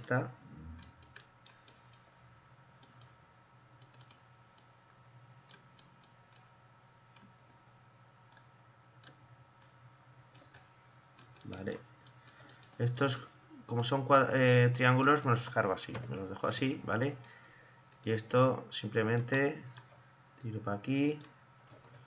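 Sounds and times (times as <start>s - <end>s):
low steady hum: 0.0s - 22.0s
faint computer mouse clicks: 3.8s - 4.7s, 10.4s - 13.0s.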